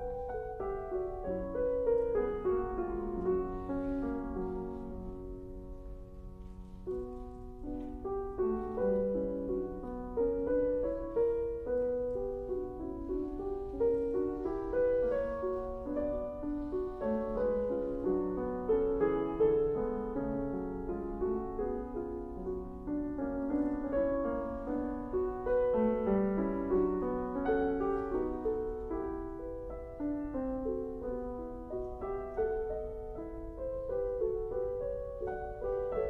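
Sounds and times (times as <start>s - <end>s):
solo piano: 0.0s - 36.0s.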